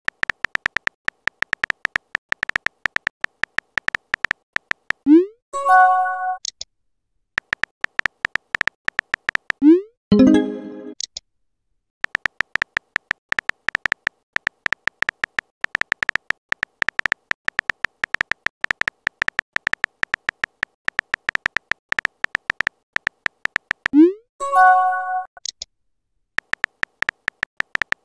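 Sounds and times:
phone keyboard typing beeps: 7.4s - 11.0s, 12.0s - 25.5s, 26.4s - 28.0s.

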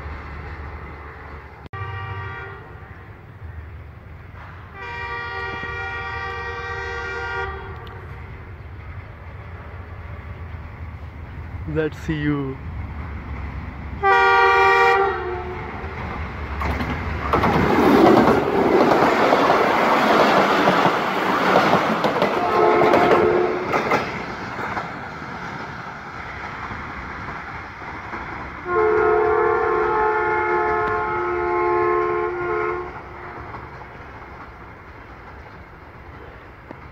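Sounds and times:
locomotive engine noise: 0.0s - 36.9s
locomotive horn blast: 1.7s - 3.1s, 4.7s - 8.2s, 14.0s - 15.9s, 22.3s - 23.8s, 28.6s - 33.5s
train wheels clattering: 15.7s - 29.7s, 32.8s - 36.9s.

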